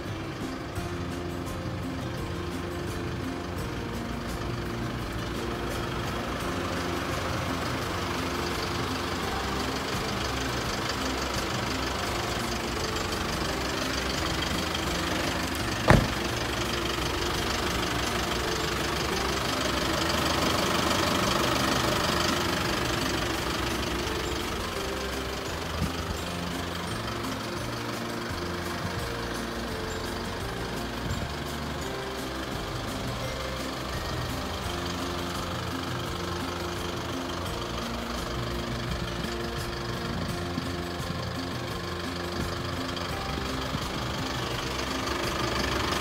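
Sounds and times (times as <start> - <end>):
diesel truck engine idling: 0.0 - 46.0
sharp thump: 15.8 - 16.4.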